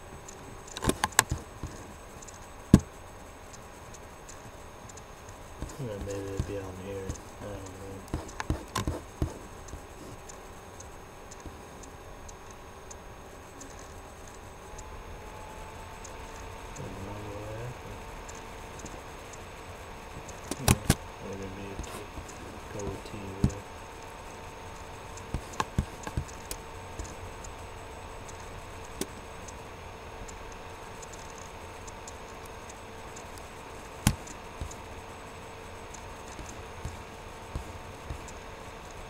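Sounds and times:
electrical hum: 0:00.0 - 0:39.0
sharp clicks and taps: 0:00.3 - 0:02.9, 0:03.9 - 0:10.4, 0:20.3 - 0:24.1, 0:24.8 - 0:27.6, 0:30.3 - 0:34.8.

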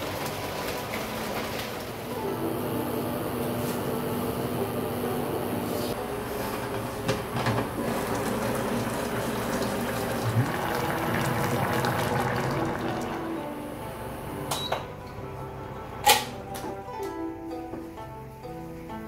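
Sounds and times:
pot simmering and bubbling: 0:00.0 - 0:14.7
cooker beep: 0:02.0 - 0:14.9.

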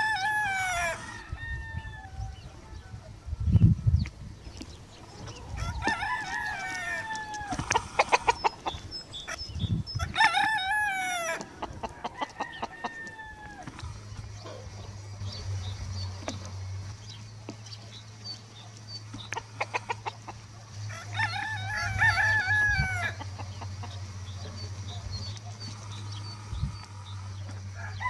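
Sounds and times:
rooster clucking: 0:00.0 - 0:01.4, 0:05.1 - 0:15.0, 0:19.1 - 0:28.0
roosters crowing: 0:00.0 - 0:03.8, 0:04.9 - 0:17.2, 0:18.0 - 0:28.0.

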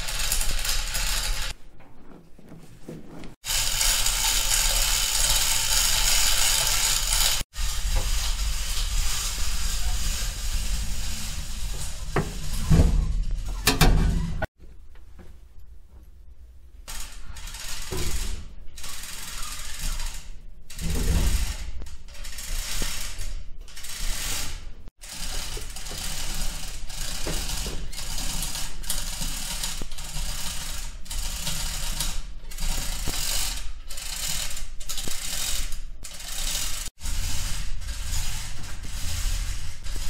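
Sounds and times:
mechanical ratcheting: 0:00.0 - 0:01.6, 0:03.4 - 0:07.4, 0:16.9 - 0:40.0.

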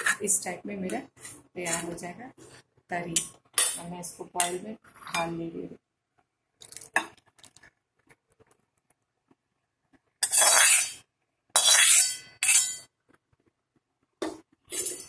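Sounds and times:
spoon scraping metal pan: 0:00.0 - 0:03.8, 0:10.2 - 0:12.9, 0:14.2 - 0:15.0.

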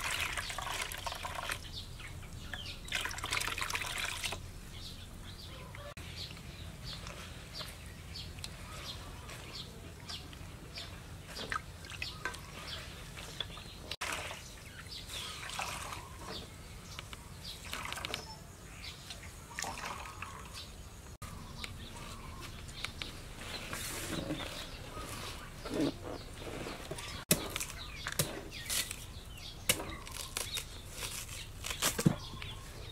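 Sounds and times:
water sloshing and dripping: 0:00.0 - 0:01.7, 0:02.8 - 0:04.5, 0:11.3 - 0:16.4, 0:17.6 - 0:18.2, 0:19.5 - 0:20.7
birds chirping: 0:00.0 - 0:32.9.

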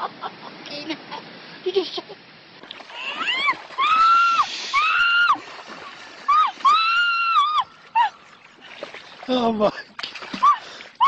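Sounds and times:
fish splashing: 0:02.6 - 0:07.1, 0:07.8 - 0:11.0
woman shrieking: 0:03.0 - 0:05.4, 0:06.3 - 0:08.2.

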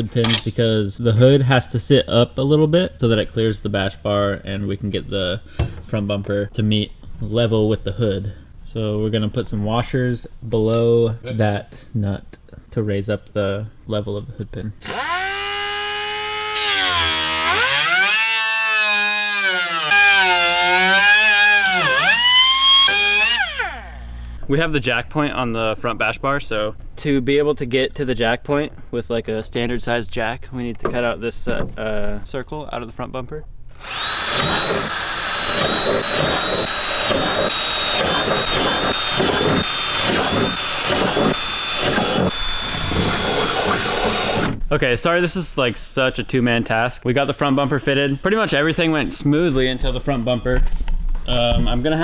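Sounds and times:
angle grinder cutting: 0:14.8 - 0:24.1, 0:33.8 - 0:44.5
cordless drill whining: 0:14.8 - 0:24.1, 0:33.8 - 0:44.6.

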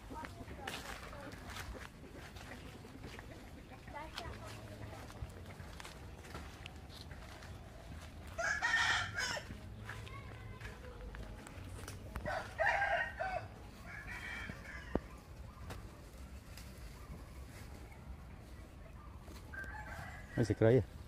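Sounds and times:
roosters crowing: 0:08.2 - 0:09.7, 0:12.2 - 0:15.4, 0:19.4 - 0:20.9.

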